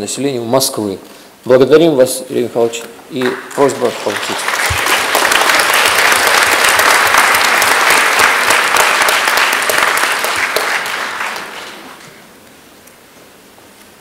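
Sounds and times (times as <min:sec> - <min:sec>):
audience applause: 0:03.2 - 0:12.3.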